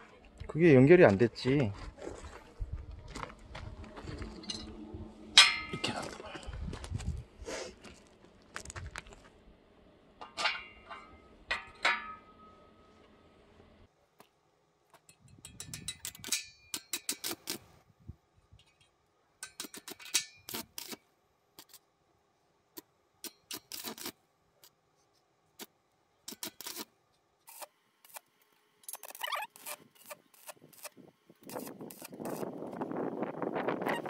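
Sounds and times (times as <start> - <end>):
welding arc crackling: 23.2 - 24.2, 26.3 - 32.8.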